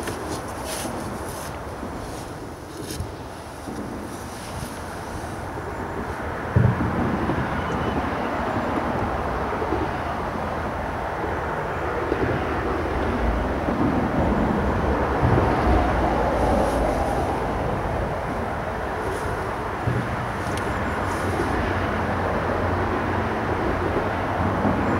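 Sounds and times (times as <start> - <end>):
road traffic noise: 0.0 - 24.9
wind buffeting microphone: 0.0 - 24.9.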